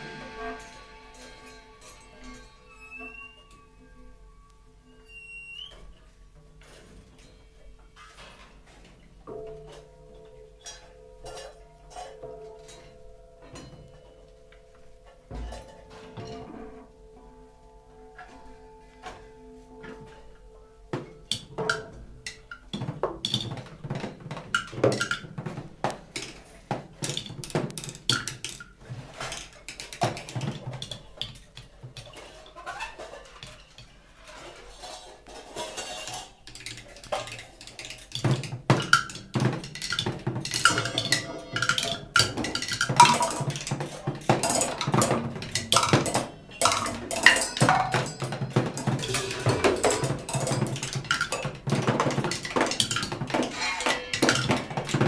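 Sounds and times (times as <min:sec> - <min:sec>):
improvised drums and percussion: 0:00.0 - 0:03.3, 0:38.1 - 0:55.0.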